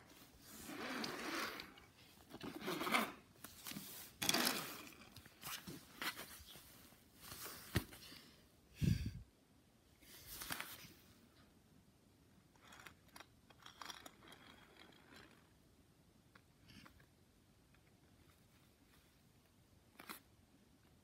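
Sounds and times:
toy cars scraping on fabric mat: 0:00.3 - 0:05.1.

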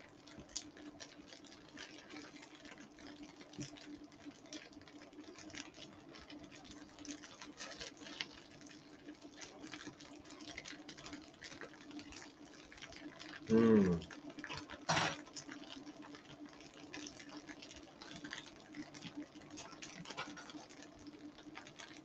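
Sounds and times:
tofu sizzling in oil: 0:00.5 - 0:22.0.

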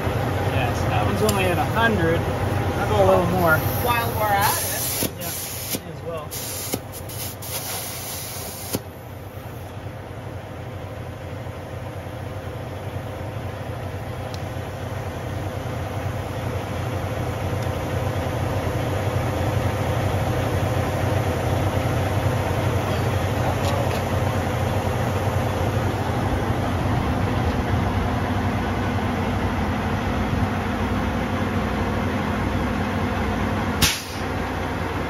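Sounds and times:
diesel truck engine idling: 0:00.0 - 0:35.0
air hissing at tire valve: 0:03.4 - 0:09.7, 0:33.8 - 0:34.3.

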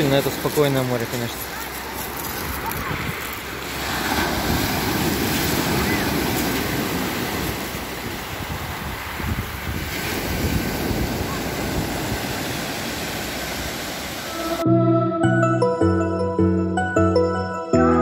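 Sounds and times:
waves breaking on pebbles: 0:00.0 - 0:14.3
wind buffeting microphone: 0:04.2 - 0:14.2.

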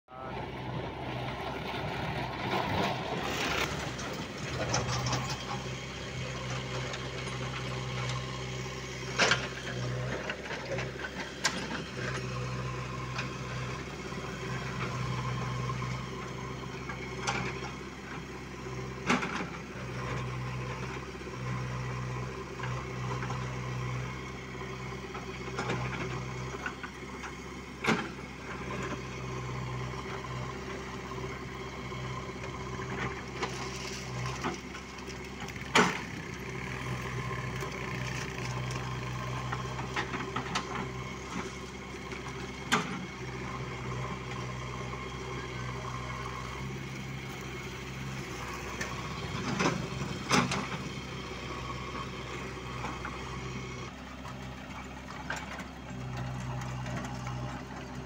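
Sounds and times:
tractor diesel engine running: 0:00.1 - 0:58.0.

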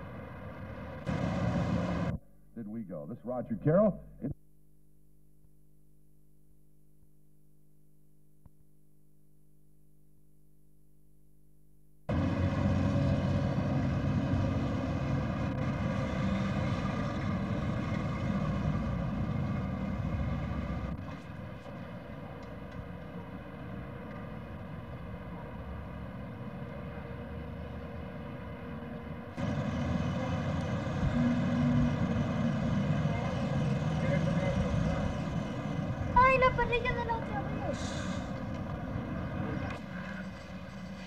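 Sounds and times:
machinery droning: 0:00.0 - 0:04.4, 0:29.4 - 0:41.0.

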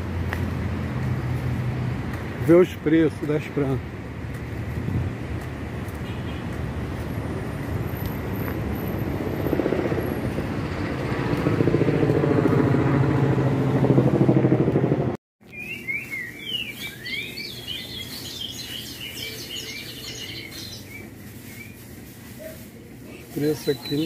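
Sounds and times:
vehicle passing by: 0:00.0 - 0:05.9, 0:06.6 - 0:15.2
birds chirping: 0:15.4 - 0:22.4, 0:23.1 - 0:24.0.

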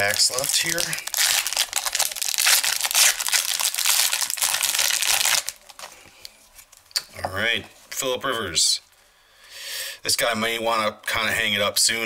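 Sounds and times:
foil wrapper tearing and crinkling: 0:00.0 - 0:05.9.

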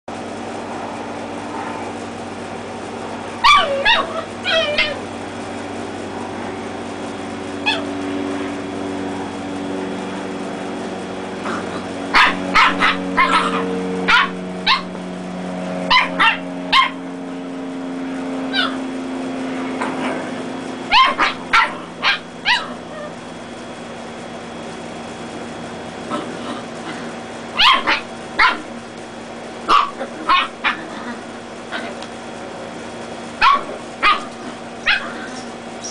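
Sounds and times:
puppies yipping: 0:03.4 - 0:05.1, 0:07.6 - 0:08.0, 0:11.5 - 0:15.0, 0:15.9 - 0:17.0, 0:18.5 - 0:18.8, 0:20.9 - 0:23.2, 0:27.6 - 0:28.7, 0:29.7 - 0:32.0, 0:33.4 - 0:35.9.

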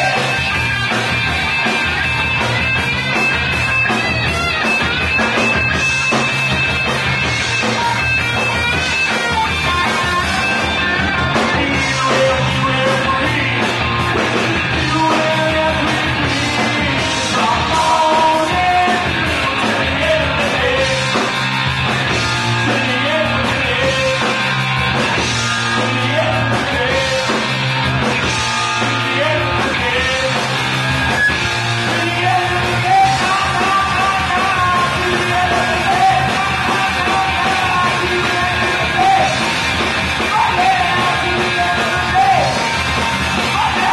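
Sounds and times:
man singing and shouting: 0:00.0 - 0:00.9, 0:07.4 - 0:21.3, 0:22.6 - 0:24.5, 0:25.4 - 0:30.6, 0:31.7 - 0:39.5, 0:40.2 - 0:43.9
drums: 0:00.0 - 0:43.9
electric guitars: 0:00.0 - 0:43.9.

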